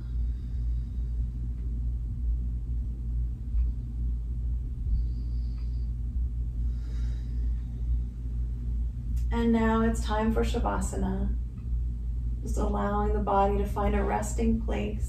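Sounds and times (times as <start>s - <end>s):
room background rumble and hum: 0.0s - 15.0s.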